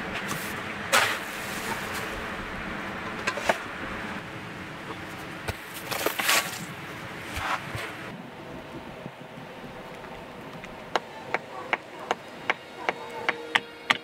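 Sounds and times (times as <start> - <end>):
shovel scraping damp sand: 0.1 - 2.4, 5.5 - 8.1
sand dropping into metal bucket: 0.2 - 2.2.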